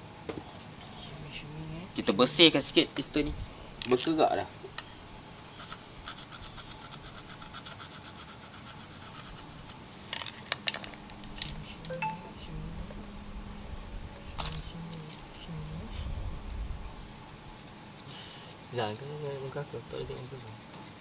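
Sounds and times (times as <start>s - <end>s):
scrubbing strokes on metal: 5.2s - 10.1s, 17.0s - 21.0s.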